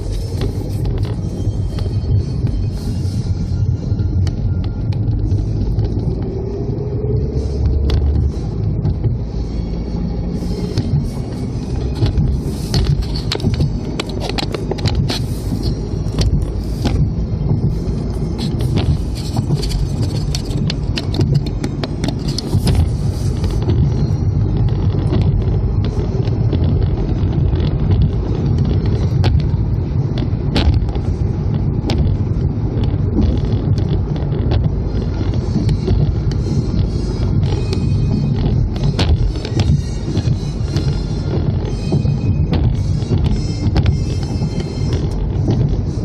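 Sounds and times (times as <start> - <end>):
car road and engine rumble: 0.0 - 46.0.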